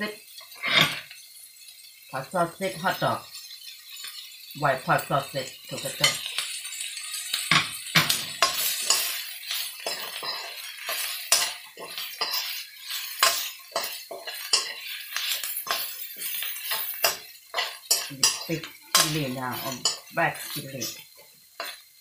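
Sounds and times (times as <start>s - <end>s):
food sizzling: 0.0s - 22.0s
metal spoon scraping wok: 0.5s - 1.1s, 5.1s - 21.9s.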